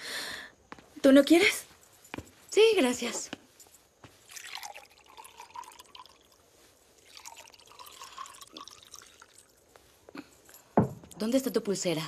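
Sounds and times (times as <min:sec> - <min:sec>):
water pouring into a cup: 0:04.2 - 0:09.6.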